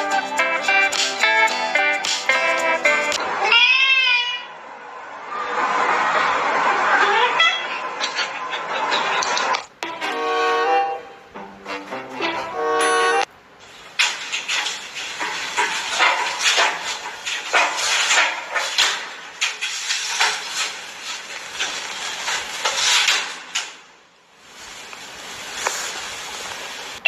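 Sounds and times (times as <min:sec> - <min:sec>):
cat claws scratching window frame: 0:13.7 - 0:23.8.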